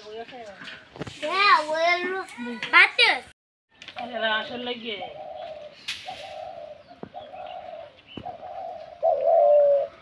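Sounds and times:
dove cooing: 0:05.0 - 0:10.0.

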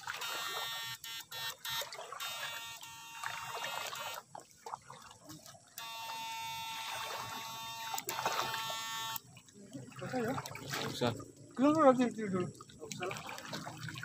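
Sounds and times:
inverter buzzing whine: 0:00.0 - 0:04.3, 0:05.7 - 0:09.4
water sloshing: 0:00.0 - 0:14.0.

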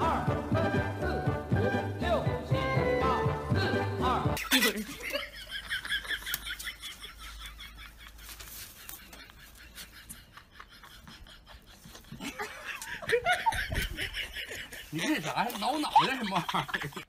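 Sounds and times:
faint rustling: 0:07.8 - 0:10.2.

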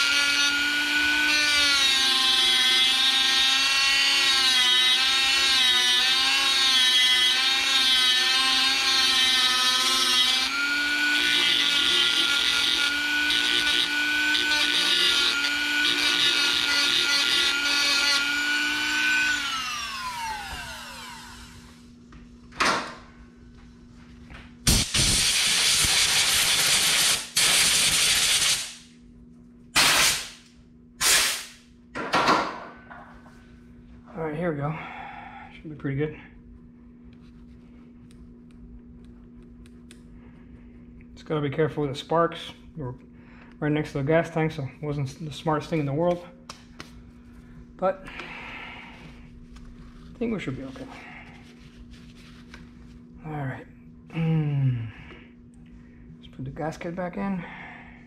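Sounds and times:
rotary tool grinding: 0:00.0 - 0:21.6.

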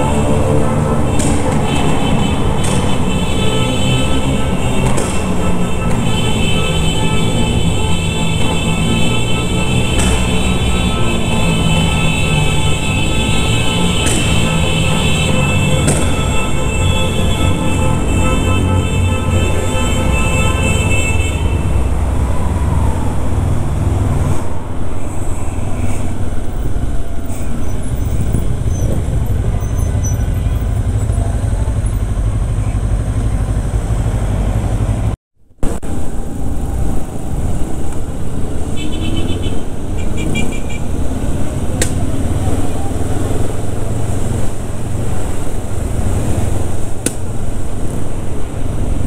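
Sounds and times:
background music: 0:00.0 - 0:23.4
motorcycle engine and wind rumble: 0:26.2 - 0:35.1.

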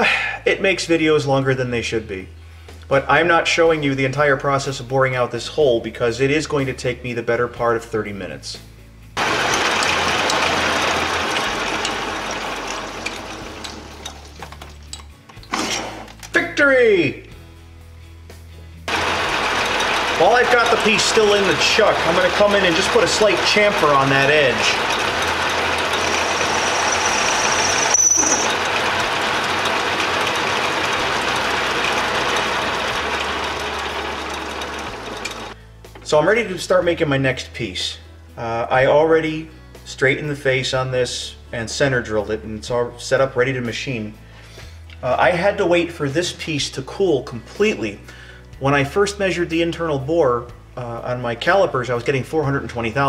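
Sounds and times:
drill cutting metal: 0:09.2 - 0:14.2, 0:18.9 - 0:35.6
lathe motor hum: 0:09.2 - 0:14.3, 0:18.9 - 0:35.6.

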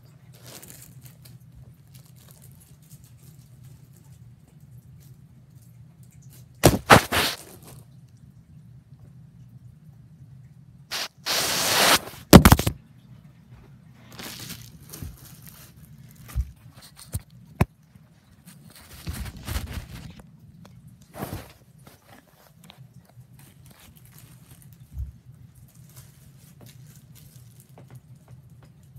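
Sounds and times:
tablet handling rustle and scrape: 0:06.6 - 0:07.7, 0:10.9 - 0:12.8, 0:18.5 - 0:20.2, 0:21.2 - 0:22.6.

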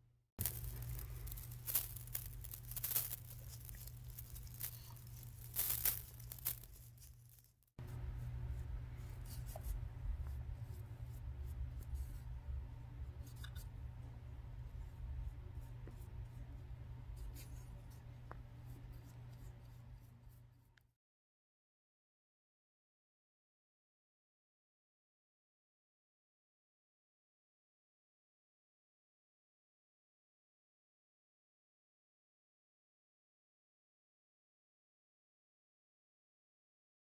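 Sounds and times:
scratchy rasping hand rustles: 0:00.4 - 0:08.4
low steady hum: 0:00.4 - 0:20.7.

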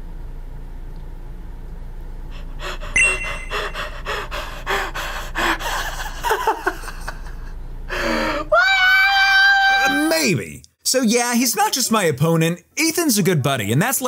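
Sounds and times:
man gasping and panting: 0:02.4 - 0:06.3.

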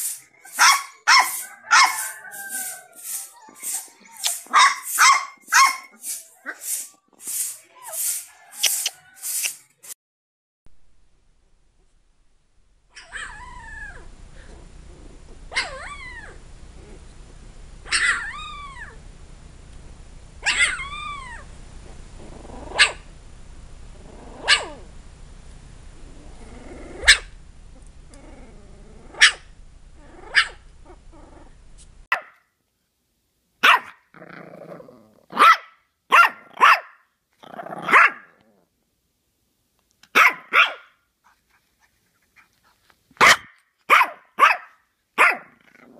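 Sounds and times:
puppy barking: 0:00.4 - 0:02.8, 0:03.5 - 0:06.7, 0:17.9 - 0:18.4, 0:20.4 - 0:20.9, 0:22.7 - 0:23.0, 0:24.4 - 0:24.8, 0:27.0 - 0:27.3, 0:29.2 - 0:29.5, 0:30.2 - 0:30.6, 0:32.1 - 0:32.4, 0:33.6 - 0:34.1, 0:35.3 - 0:37.0, 0:37.8 - 0:38.3, 0:40.1 - 0:41.0, 0:43.2 - 0:45.6
low steady hum: 0:10.7 - 0:32.1
puppies squeaky cries: 0:13.0 - 0:14.0, 0:17.9 - 0:18.9, 0:20.4 - 0:21.4.

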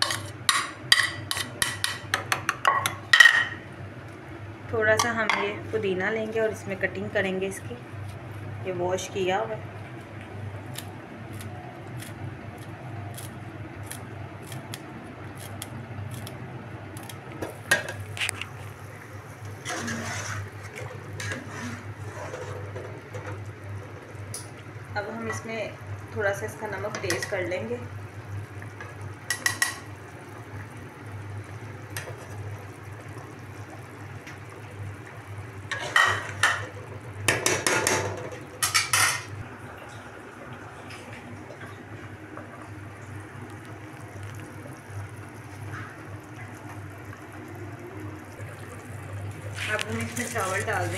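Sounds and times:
steady low hum: 0:00.0 - 0:50.9
metal spoon scraping a pot: 0:19.6 - 0:20.5, 0:21.2 - 0:22.7.

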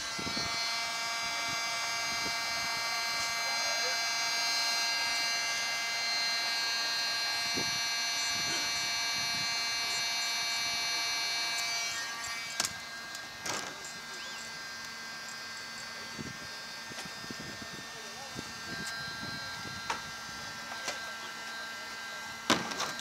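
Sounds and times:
heat gun fan whine: 0:00.0 - 0:23.0.

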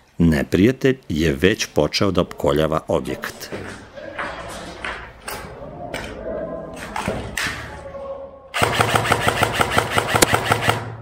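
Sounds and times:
sharp clicks: 0:08.6 - 0:10.9
airsoft rifle full-auto burst: 0:08.6 - 0:11.0.

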